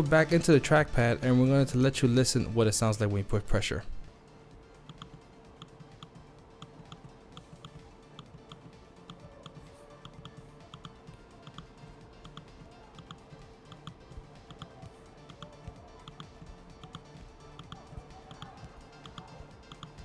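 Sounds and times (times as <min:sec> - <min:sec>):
trackpad haptic clicks: 0:04.8 - 0:20.0.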